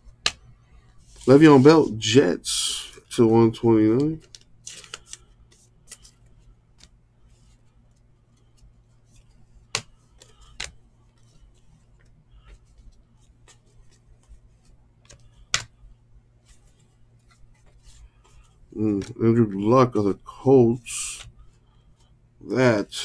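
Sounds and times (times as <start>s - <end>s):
faint low hum: 0.0s - 23.0s
trading cards clicking and sliding: 2.9s - 7.7s, 8.3s - 15.8s, 16.4s - 19.3s, 20.8s - 21.4s.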